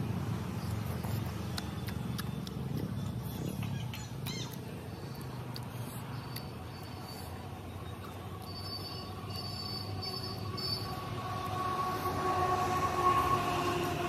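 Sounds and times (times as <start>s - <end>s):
distant vehicle rumble with whine: 0.0s - 14.0s.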